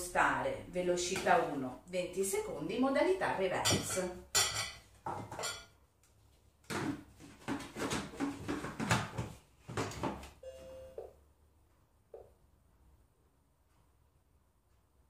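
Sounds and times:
glass bowl clattering: 3.7 - 5.8
short electronic beep: 10.4 - 11.0.

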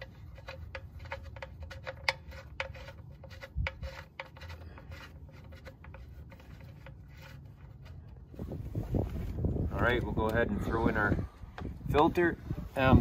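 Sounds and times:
clicks and scrapes of plug threads: 0.0 - 8.2.

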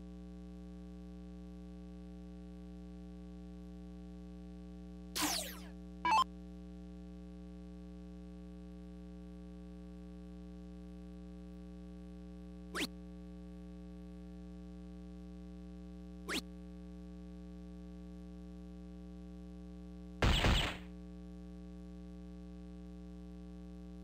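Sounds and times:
mains hum: 0.0 - 24.0
falling electronic sweep: 5.2 - 6.2
brief falling electronic chirp: 5.2 - 6.3
short bright electronic blip: 5.2 - 6.3, 20.2 - 20.8.

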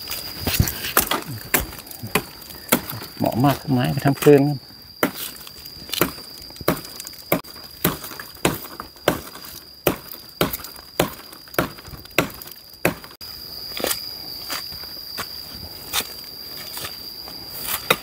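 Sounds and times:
footsteps in dry undergrowth: 0.0 - 8.2.

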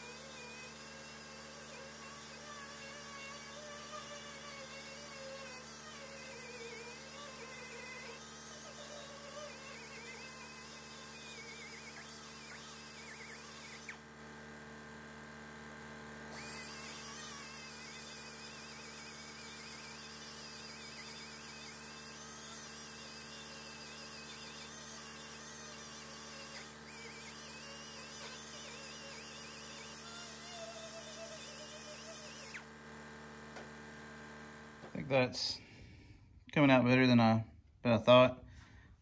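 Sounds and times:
power grinder whining on metal: 0.0 - 35.2.

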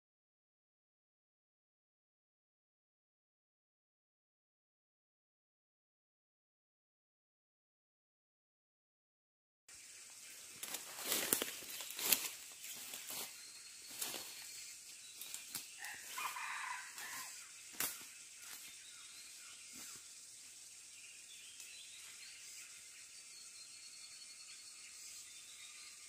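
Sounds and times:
footsteps crunching dry leaves: 10.4 - 18.9.

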